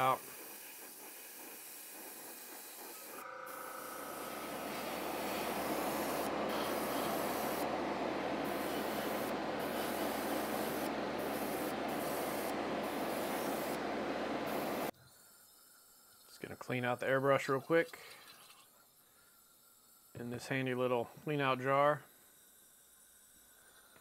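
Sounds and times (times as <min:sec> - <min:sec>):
airbrush air hissing: 0:00.0 - 0:14.9, 0:21.4 - 0:24.0
low motor hum: 0:02.9 - 0:14.9.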